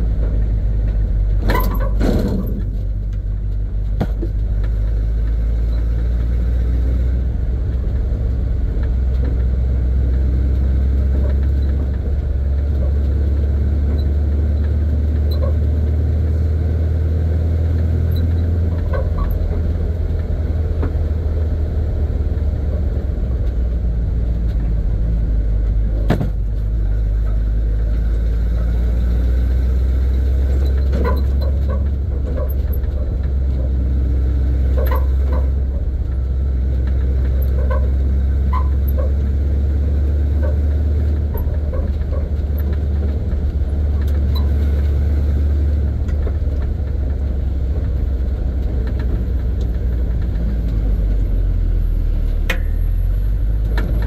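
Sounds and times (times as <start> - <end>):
truck engine drone: 0.0 - 54.0.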